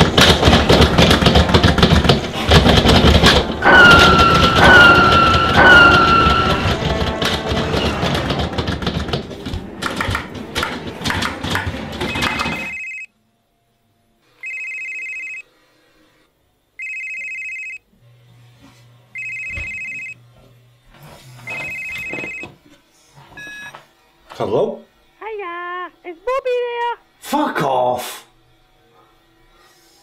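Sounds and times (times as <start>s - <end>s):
loud clattering: 0.0s - 12.8s
electronic telephone ringing: 12.1s - 13.1s, 14.4s - 15.5s, 16.8s - 17.9s, 19.1s - 20.2s, 21.4s - 22.6s.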